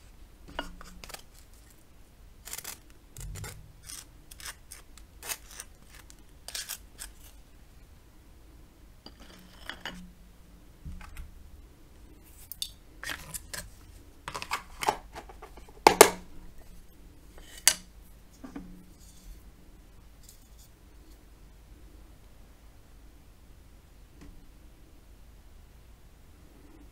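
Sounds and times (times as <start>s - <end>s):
knife scraping butter on toast: 0.6s - 1.8s, 2.4s - 7.4s.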